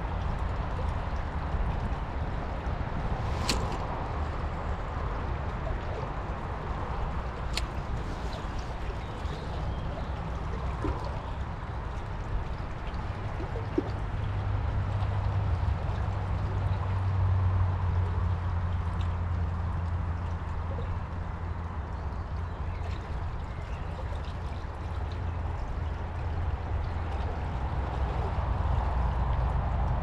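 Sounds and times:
river rushing and gurgling: 0.0 - 16.4.

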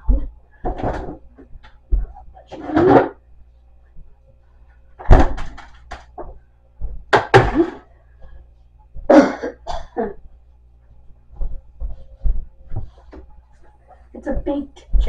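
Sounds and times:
woman coughing: 9.1 - 10.2.

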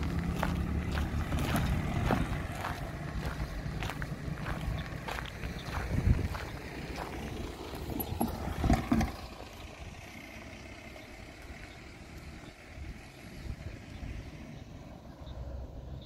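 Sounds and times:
footsteps on tarmac: 0.0 - 9.5
low rumble: 0.0 - 10.2
faint outdoor background: 0.0 - 16.0.

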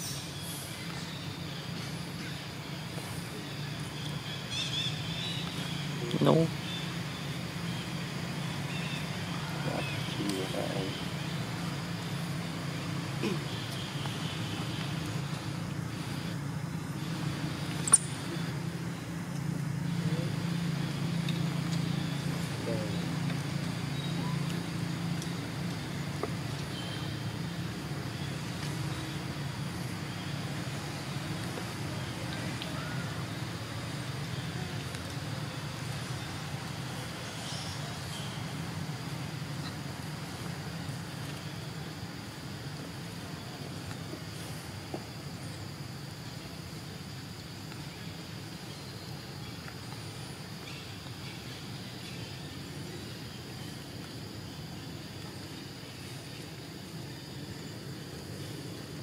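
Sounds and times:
high insect drone: 0.0 - 59.0
low motor hum: 5.0 - 41.7.

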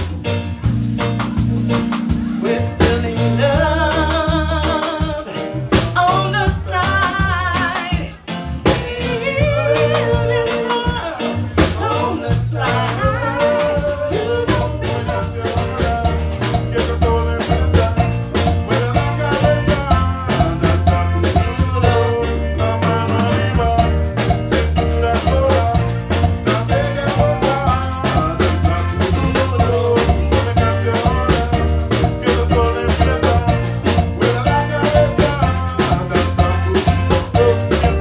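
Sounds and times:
reggae band playing: 0.0 - 38.0
repeating bass line: 0.0 - 38.0
woman singing: 2.5 - 16.0.

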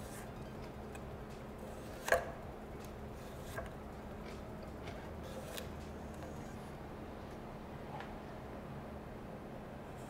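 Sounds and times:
knife slicing cucumber: 1.7 - 2.4.

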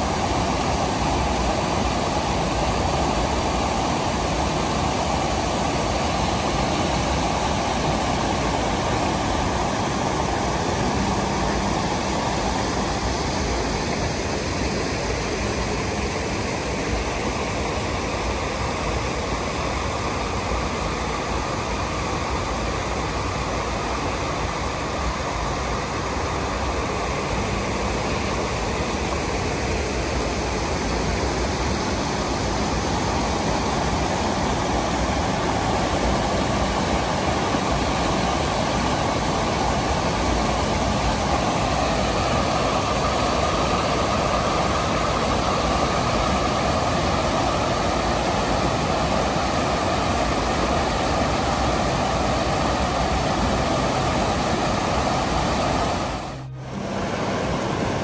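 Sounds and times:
stream flowing: 0.0 - 58.0.

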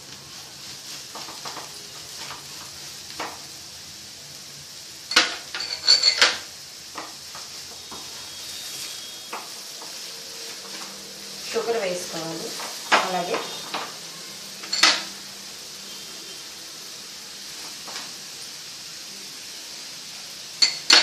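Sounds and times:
carrot frying sizzle: 0.0 - 21.0
spatula scraping and tapping pan: 0.1 - 3.5, 5.1 - 11.0, 12.5 - 14.0, 20.6 - 21.0.

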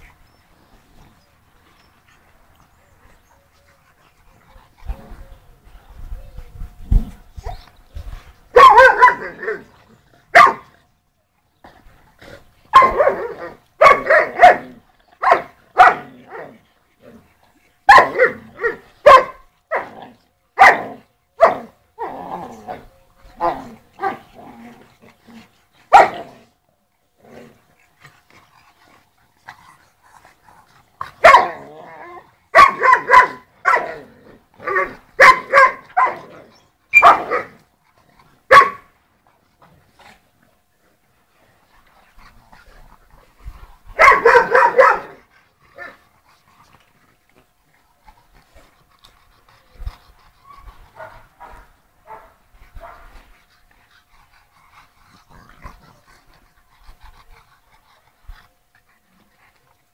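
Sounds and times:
dogs barking: 8.5 - 9.7, 10.3 - 10.7, 12.7 - 16.1, 17.9 - 20.0, 20.6 - 21.7, 25.9 - 26.3, 31.2 - 31.6, 32.5 - 34.0, 34.7 - 36.3, 36.9 - 37.6, 38.5 - 38.9, 44.0 - 45.2.

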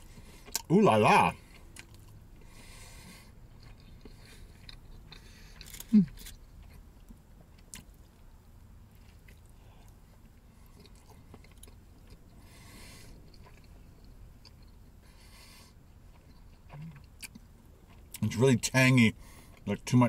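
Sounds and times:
man chewing: 0.0 - 0.7, 1.3 - 18.4, 19.2 - 19.7.

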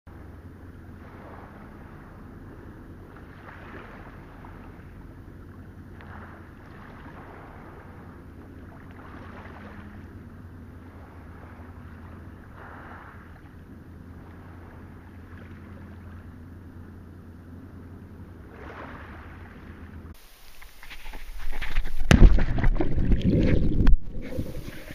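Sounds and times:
steady low rumble: 0.1 - 24.9
waves lapping over stones: 3.1 - 10.2, 10.8 - 16.3, 18.5 - 24.9.

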